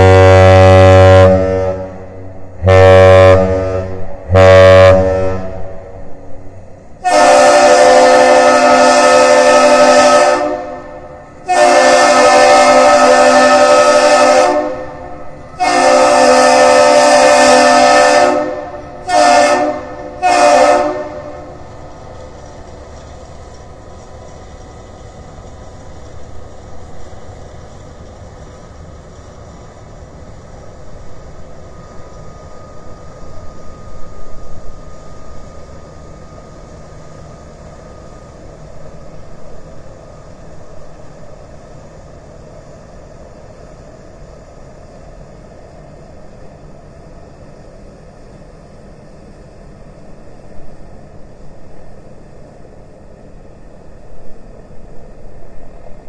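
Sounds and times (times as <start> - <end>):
ship horn blasts: 0.0 - 21.7
low steady rumble: 0.0 - 56.0.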